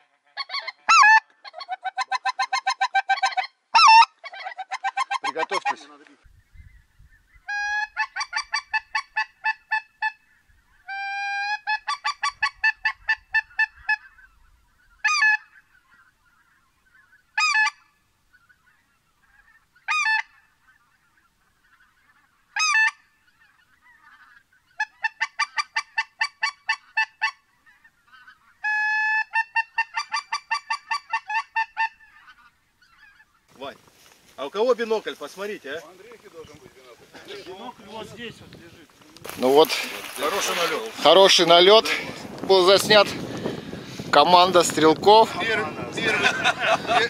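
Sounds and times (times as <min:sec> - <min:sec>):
goose honking: 0:00.0 - 0:06.0, 0:07.3 - 0:33.4, 0:39.3 - 0:42.2.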